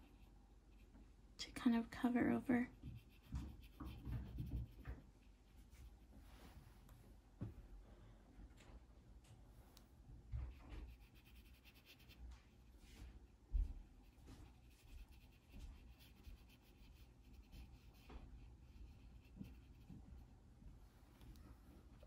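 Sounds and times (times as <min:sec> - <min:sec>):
brush scratching on paper: 0:00.0 - 0:00.9, 0:02.7 - 0:06.1, 0:10.5 - 0:20.2.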